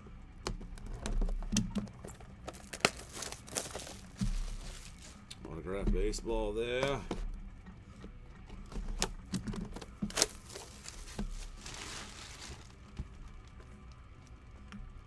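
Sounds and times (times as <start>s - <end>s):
crinkling rustle: 1.8s - 5.4s, 9.6s - 14.3s.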